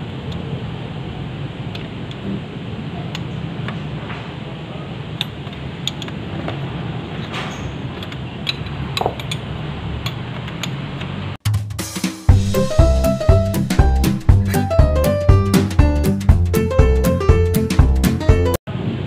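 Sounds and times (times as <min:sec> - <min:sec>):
steady background noise: 0:00.0 - 0:11.4.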